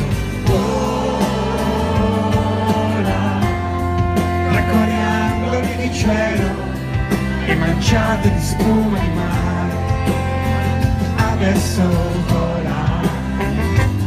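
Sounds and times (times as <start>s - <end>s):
person singing: 0.0s - 10.2s
acoustic guitar: 0.0s - 14.0s
electric bass: 0.0s - 14.0s
live band playing pop ballad: 0.0s - 14.0s.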